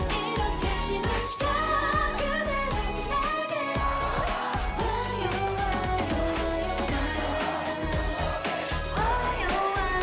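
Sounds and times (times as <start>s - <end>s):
backing track with steady beat: 0.0s - 10.0s
group singing a pop song: 0.0s - 10.0s.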